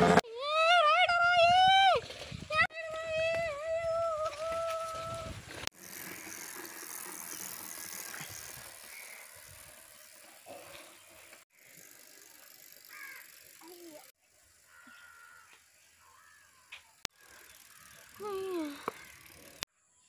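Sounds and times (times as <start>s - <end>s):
bike rattling over dirt trail: 0.0s - 15.9s, 16.8s - 19.6s
wind noise on microphone: 1.0s - 5.6s
rustling and clicks of bike: 1.2s - 19.7s.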